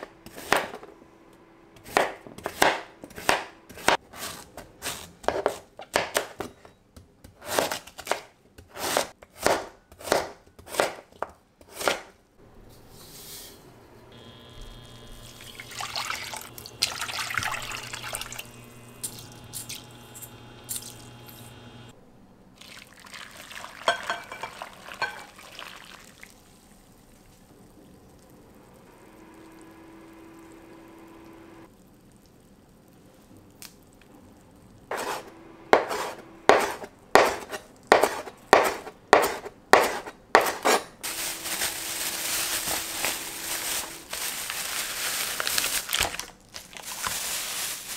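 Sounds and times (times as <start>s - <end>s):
knife chopping on cutting board: 0.3s - 0.8s, 1.8s - 6.4s, 7.2s - 12.1s, 34.9s - 41.0s
liquid pouring and splashing: 15.2s - 19.9s, 22.6s - 28.5s, 31.7s - 34.9s
plastic bag crinkling: 41.0s - 47.9s.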